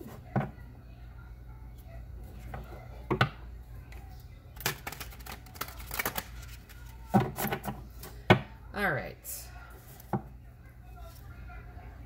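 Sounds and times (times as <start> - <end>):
cards being shuffled by hand: 4.6 - 7.5.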